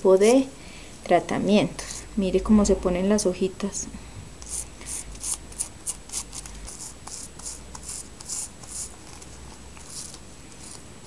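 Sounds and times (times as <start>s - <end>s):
toothbrush scrubbing leaves: 4.4s - 10.8s.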